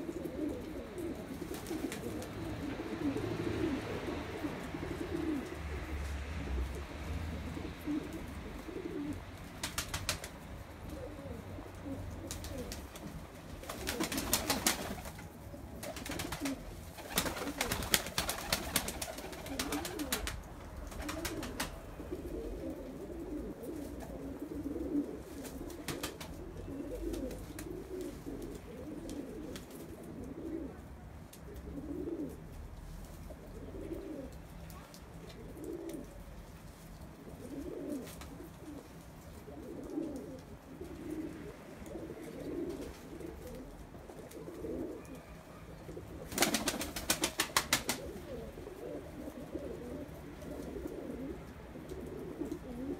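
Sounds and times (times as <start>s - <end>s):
pigeons cooing: 0.0s - 52.9s
wings flapping: 1.3s - 2.3s, 9.5s - 10.4s, 12.2s - 21.8s, 25.4s - 26.4s, 46.2s - 48.4s.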